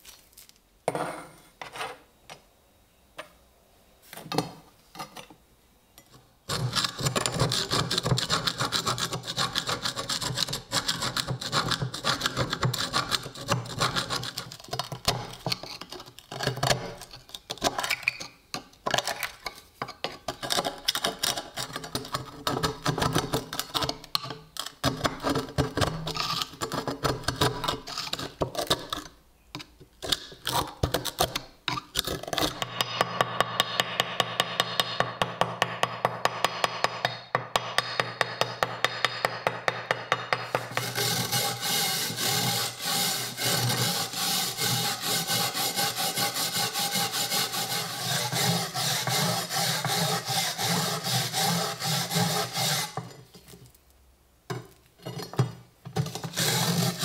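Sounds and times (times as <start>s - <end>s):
chisel scraping rust off metal: 6.5s - 29.1s, 40.3s - 53.6s, 55.0s - 57.0s.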